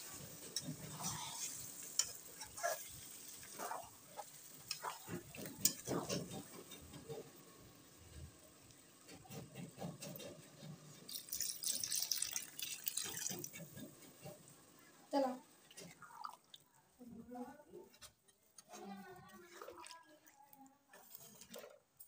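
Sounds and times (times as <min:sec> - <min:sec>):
gravy hissing and bubbling: 0:00.0 - 0:22.0
spatula scraping metal pan: 0:00.6 - 0:06.9
curry sloshing while stirred: 0:19.3 - 0:21.8.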